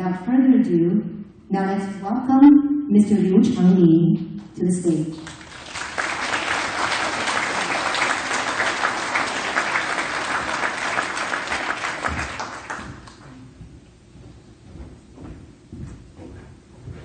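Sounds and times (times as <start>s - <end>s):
audience applauding: 5.2s - 13.3s.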